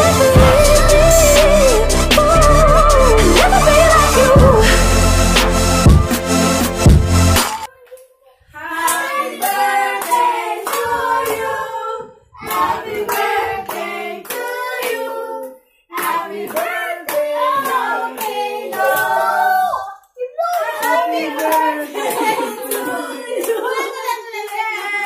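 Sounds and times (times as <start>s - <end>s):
children singing together: 0.0s - 4.8s, 8.6s - 20.0s.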